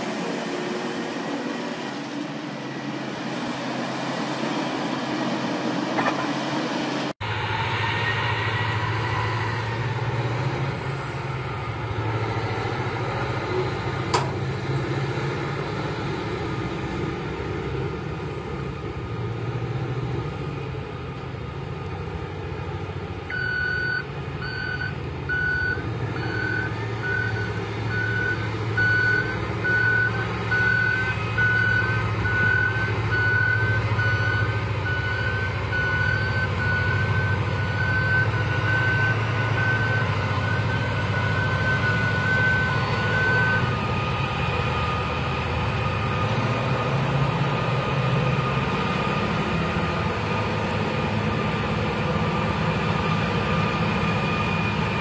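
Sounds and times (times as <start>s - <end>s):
diesel engine running: 0.0s - 55.0s
back-up alarm beeping: 23.3s - 43.7s.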